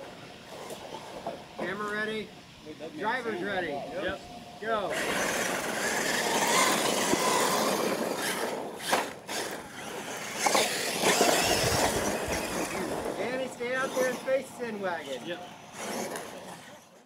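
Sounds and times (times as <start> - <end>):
rc trucks motors on dirt: 0.0 - 2.2, 4.8 - 17.0.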